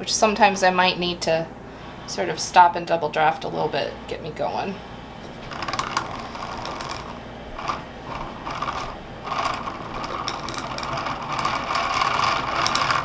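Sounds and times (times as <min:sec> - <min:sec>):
spinning wheel whirring and rattling: 0:05.3 - 0:13.0.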